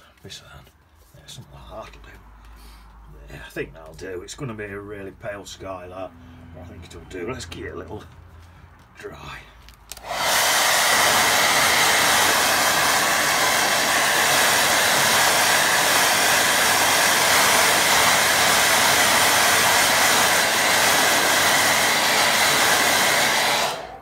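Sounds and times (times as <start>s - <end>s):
hair dryer running: 9.9s - 24.0s.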